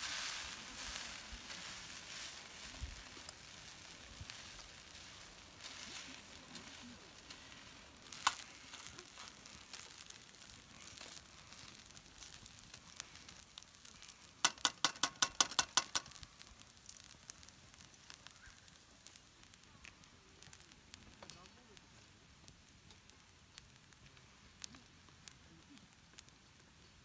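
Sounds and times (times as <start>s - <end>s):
rice sizzling in a pan: 0.0s - 27.0s
metal tongs clicking on pan: 14.4s - 16.2s.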